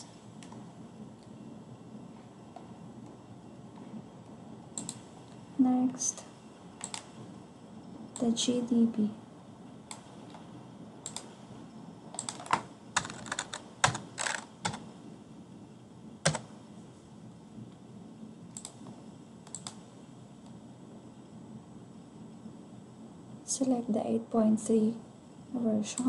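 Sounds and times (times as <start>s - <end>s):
keyboard keystrokes: 4.8s - 5.0s, 6.8s - 7.1s, 11.1s - 11.3s, 12.2s - 14.8s, 16.3s - 16.5s, 19.5s - 19.8s.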